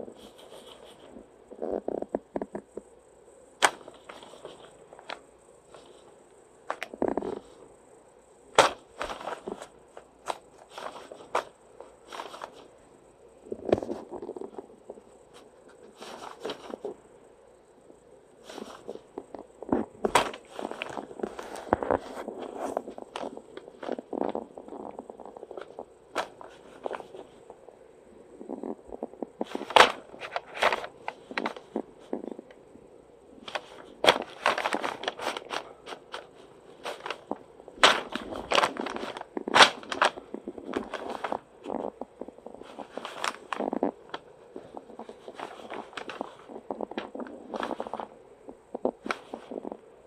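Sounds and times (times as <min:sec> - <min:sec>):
newspaper crinkling and rustling: 0:03.6 - 0:06.0, 0:06.6 - 0:07.6, 0:08.5 - 0:12.7, 0:15.3 - 0:17.0, 0:18.4 - 0:27.5, 0:29.4 - 0:32.4, 0:33.4 - 0:48.1.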